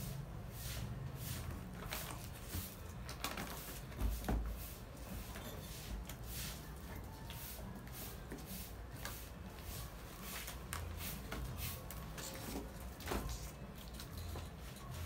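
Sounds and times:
cardboard cartons rustling and scraping: 0.7s - 6.6s.

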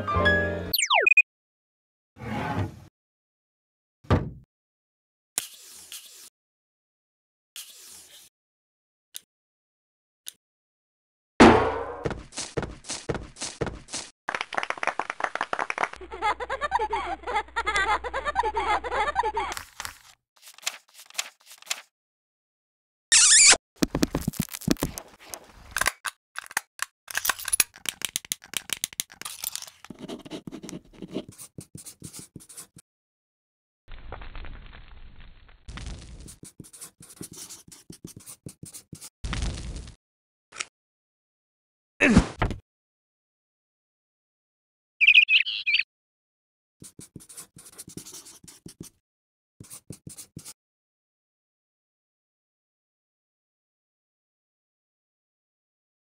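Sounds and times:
warbling bird-like chirps: 0.7s - 1.2s, 45.0s - 45.9s
scratchy clicks and rasps: 27.3s - 32.8s
marker pen scratching: 27.7s - 32.8s, 36.4s - 39.1s, 46.8s - 49.0s, 49.6s - 50.6s.

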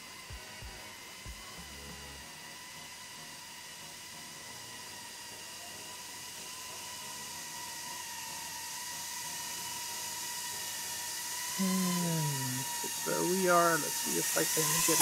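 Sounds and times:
drone motors whining: 0.0s - 15.0s
man speaking: 11.6s - 13.6s.

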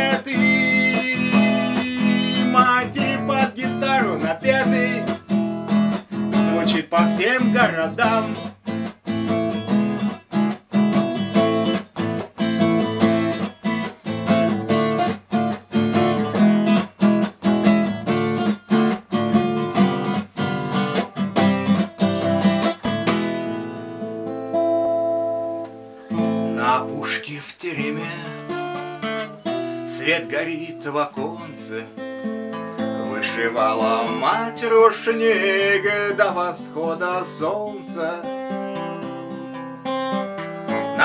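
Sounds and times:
second guitar part: 0.0s - 27.2s, 38.0s - 41.0s
acoustic guitar strumming: 0.0s - 41.0s.

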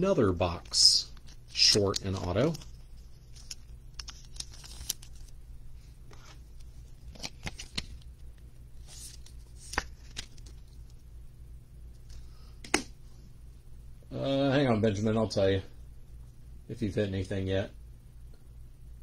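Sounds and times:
plastic sleeve rustling: 0.5s - 5.4s, 8.8s - 11.0s.

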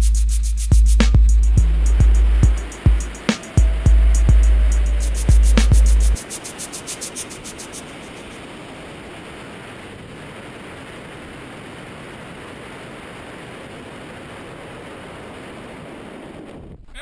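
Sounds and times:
air rushing over microphone: 0.0s - 16.8s.

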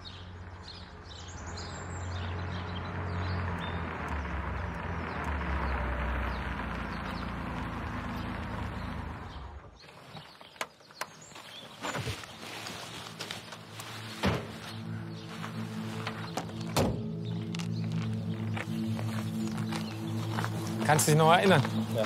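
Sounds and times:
car engine running: 0.0s - 9.8s
car door clicks and thunks: 16.4s - 17.2s.

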